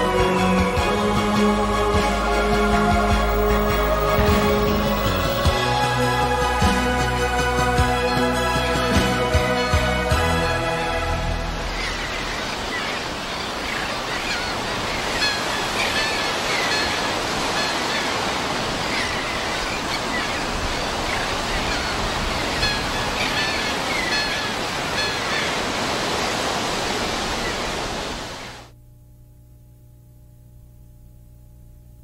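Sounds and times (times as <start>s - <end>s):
ocean surf washing: 1.2s - 28.7s
birds calling: 3.2s - 5.6s, 11.4s - 28.5s.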